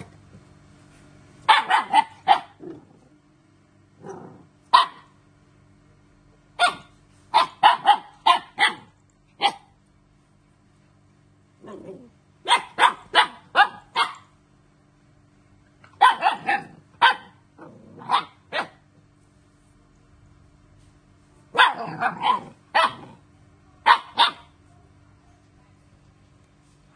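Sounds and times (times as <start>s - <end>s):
puppy barking: 1.4s - 2.6s, 4.7s - 5.2s, 6.6s - 9.7s, 12.4s - 14.3s, 15.9s - 17.4s, 18.0s - 18.9s, 21.5s - 23.2s, 23.8s - 24.6s
puppy growling low: 2.4s - 3.3s, 3.9s - 4.7s, 11.6s - 12.2s, 16.4s - 18.4s, 21.7s - 23.3s.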